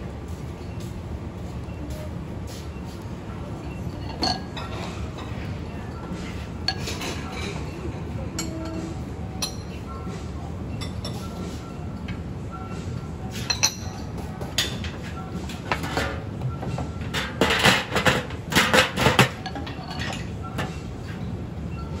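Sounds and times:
steady low hum: 0.0 - 22.0
steel lid clattering: 17.1 - 20.7.

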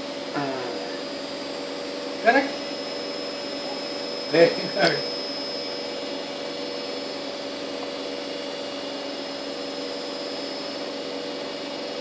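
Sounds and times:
constant tones: 0.7 - 8.2.

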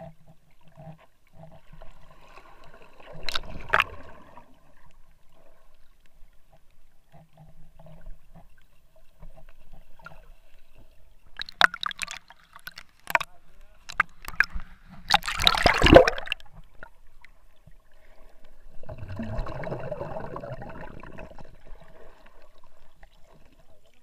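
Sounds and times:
muffled underwater water movement: 0.0 - 24.0
sharp water splashes: 3.2 - 4.1, 11.4 - 13.3, 13.9 - 16.5
underwater rushing burst: 13.9 - 16.5.

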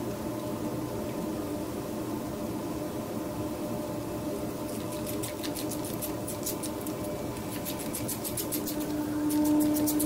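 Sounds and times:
low hum: 6.2 - 10.0
scratchy scraping strokes: 7.6 - 10.0.

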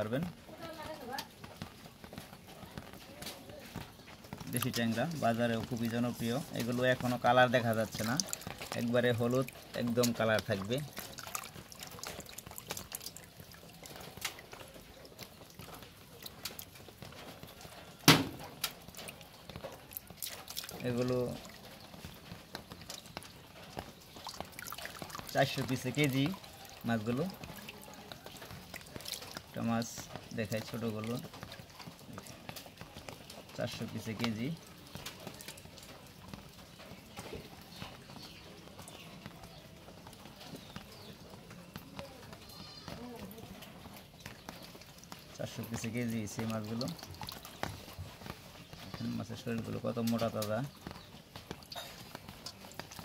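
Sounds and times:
water dripping into a metal basin: 0.0 - 53.0
small fish wriggling in wet hands: 4.5 - 18.0, 18.7 - 41.1
sharp wet slap: 18.1 - 18.4.

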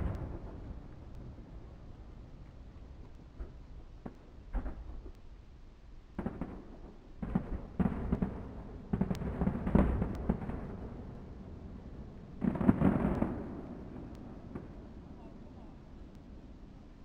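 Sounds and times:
fireworks bursting with bangs: 0.0 - 1.8, 3.3 - 5.2, 6.1 - 15.5.

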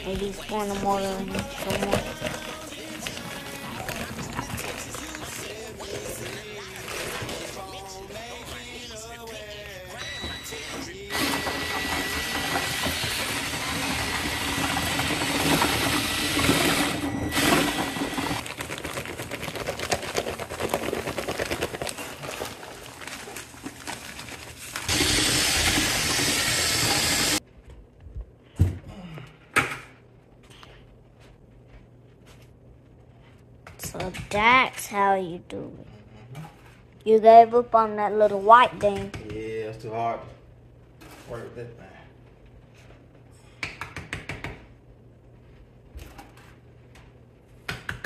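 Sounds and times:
dry mix pouring into bucket: 1.4 - 7.8, 12.1 - 27.4
drill with mixing paddle: 10.0 - 18.5, 24.9 - 27.4.

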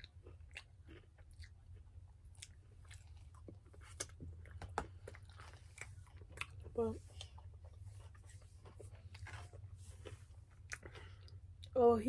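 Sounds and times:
faint chewing of salad: 0.0 - 11.8.

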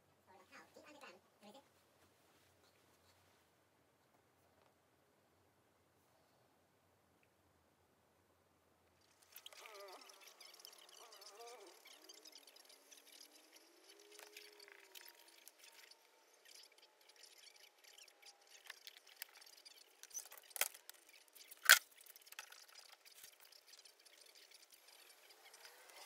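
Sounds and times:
small clicks: 9.0 - 26.0.

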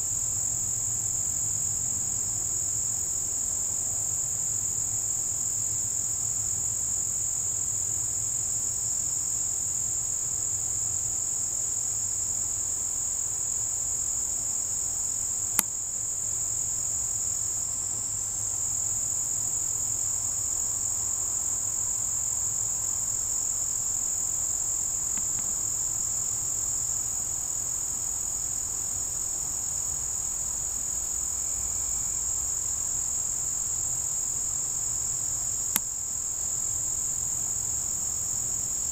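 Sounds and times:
insects trilling: 0.0 - 38.9
sharp click: 25.1 - 25.6.

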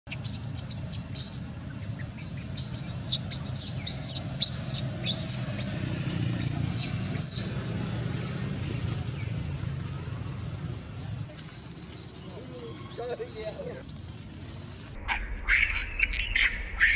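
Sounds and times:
baby monkey squealing cries: 2.7 - 7.5, 11.5 - 14.9.

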